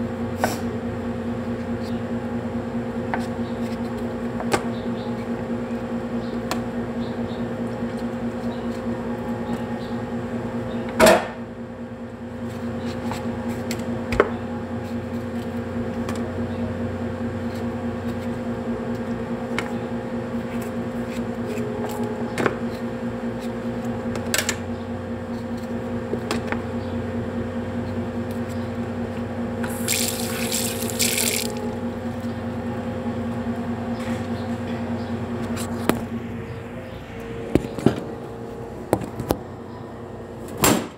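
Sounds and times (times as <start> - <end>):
low hum: 29.4 - 40.5
tap water running into sink: 29.7 - 31.7.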